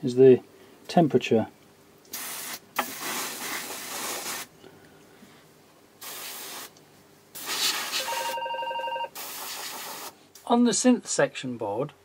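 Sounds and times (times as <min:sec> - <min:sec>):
aerosol spray hissing: 0:02.1 - 0:04.5, 0:06.0 - 0:06.8, 0:07.4 - 0:08.1, 0:09.2 - 0:10.2.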